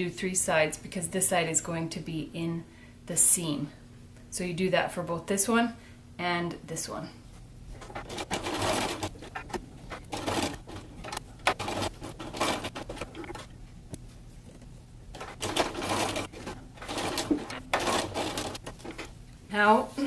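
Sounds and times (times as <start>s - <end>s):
sewing machine stitching: 7.8s - 13.5s, 15.2s - 19.1s.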